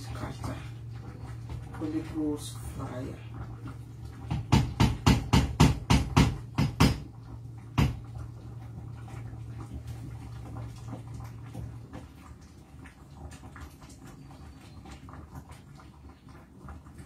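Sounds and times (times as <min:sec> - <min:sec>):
low steady hum: 0:00.0 - 0:17.0
sharp knocks: 0:04.3 - 0:07.1.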